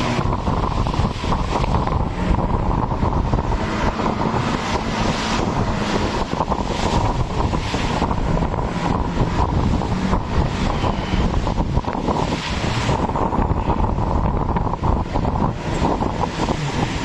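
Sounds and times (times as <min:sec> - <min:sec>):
motorboat engine drone: 0:00.0 - 0:17.0
water rushing against hull: 0:00.0 - 0:17.0
wind buffeting on microphone: 0:00.0 - 0:17.0.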